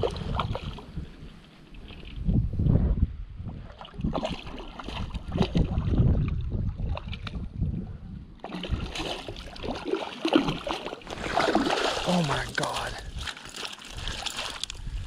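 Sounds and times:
wind buffeting microphone: 0.0s - 9.8s, 13.9s - 15.0s
fish thrashing and splashing: 8.4s - 14.9s.

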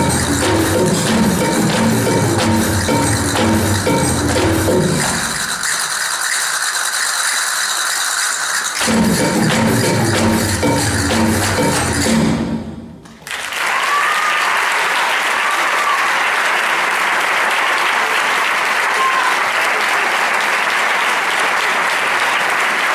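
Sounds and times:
stage music: 0.0s - 14.0s
audience applause: 13.1s - 22.9s.

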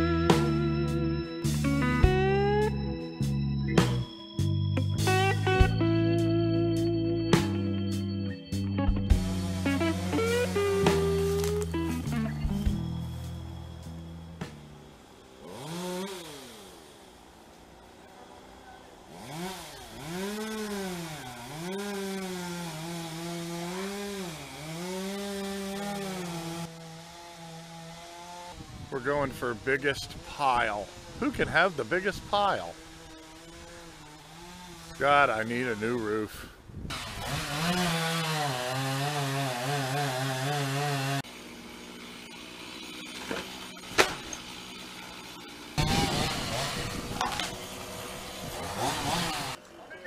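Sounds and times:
chainsaw revving: 9.1s - 12.2s, 15.1s - 18.4s, 19.0s - 28.9s, 29.5s - 36.2s, 36.9s - 49.6s
outdoor background noise: 10.7s - 22.7s, 41.2s - 50.0s.

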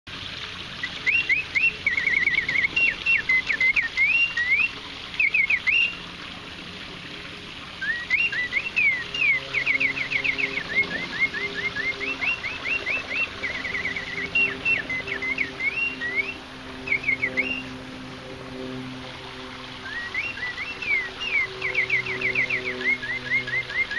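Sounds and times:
mechanical birdsong whistle: 0.8s - 6.0s, 7.8s - 17.8s, 19.8s - 23.9s.

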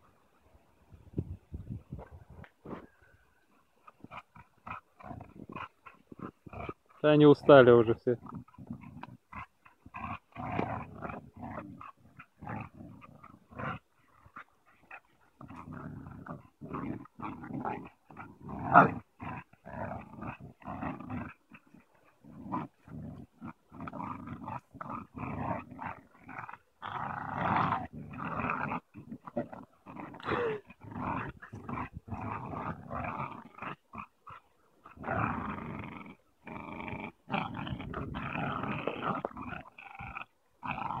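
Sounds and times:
dogs growling in play: 2.0s - 41.0s.

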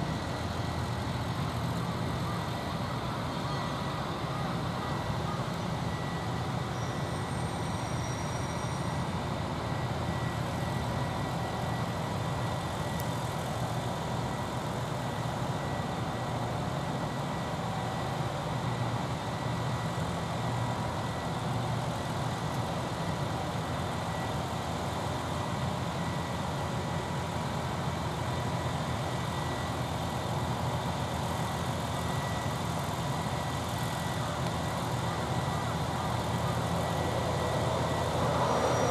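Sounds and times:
faint high whine: 0.0s - 38.9s
machinery humming: 27.7s - 38.9s.

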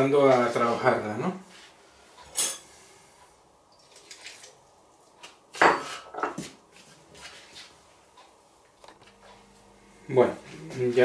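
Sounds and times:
water pouring: 3.7s - 4.6s
kitchenware knocking and clattering: 5.6s - 6.4s.

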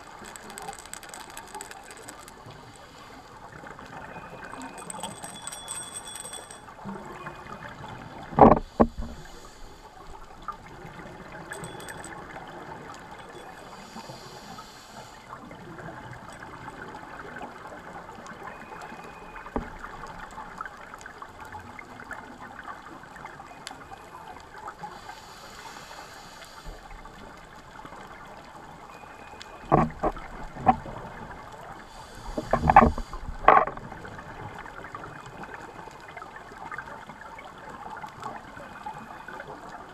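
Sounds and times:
steady underwater wash: 0.0s - 39.9s
regulator inhalation hiss: 13.8s - 15.2s, 25.0s - 26.8s.

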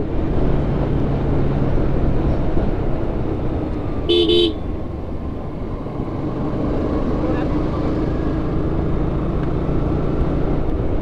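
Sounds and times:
motorcycle engine: 0.0s - 11.0s
road noise: 0.0s - 11.0s
short horn beep: 4.1s - 4.6s.

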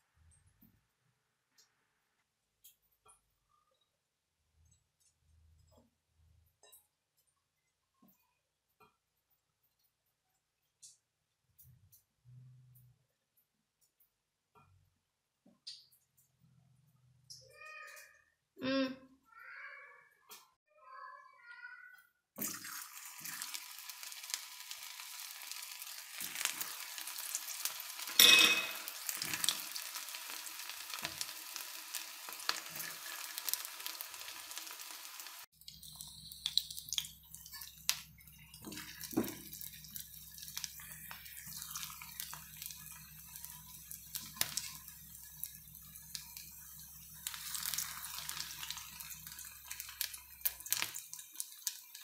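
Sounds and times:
food deep-frying in oil: 22.4s - 52.0s.

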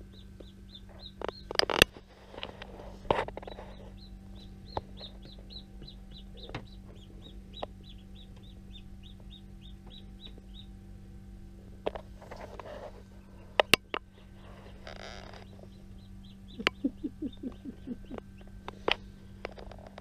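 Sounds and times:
chick peeping: 0.0s - 10.8s, 13.2s - 19.0s
incubator hum: 0.0s - 20.0s.

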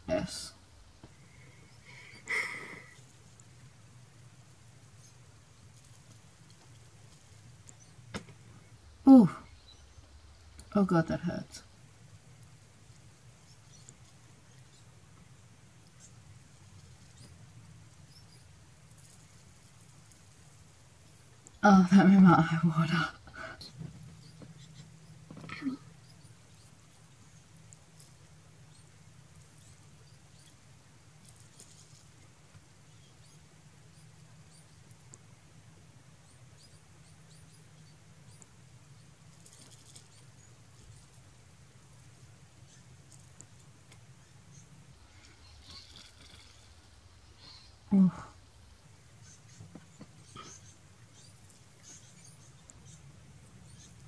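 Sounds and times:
low room hum: 0.0s - 54.0s
soft crackle: 0.5s - 10.8s, 11.6s - 22.0s, 22.9s - 54.0s
faint high ticks of peeling mask: 42.0s - 46.9s.

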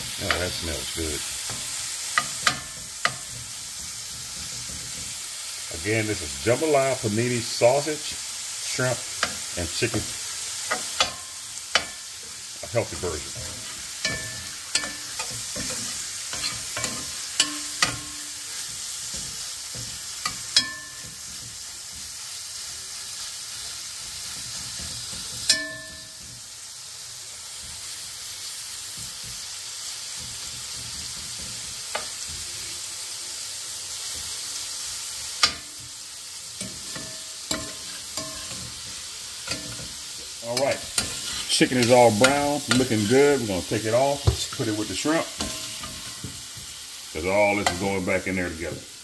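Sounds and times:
meat sizzling in oil: 0.0s - 49.0s
metal spoon scraping a pot: 13.3s - 21.3s, 40.6s - 43.2s.

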